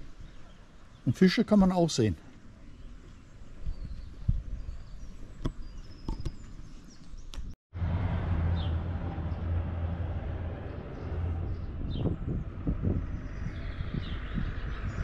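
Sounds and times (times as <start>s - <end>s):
bird chirps: 2.6s - 7.4s
rushing wind: 2.8s - 6.7s, 7.4s - 15.0s.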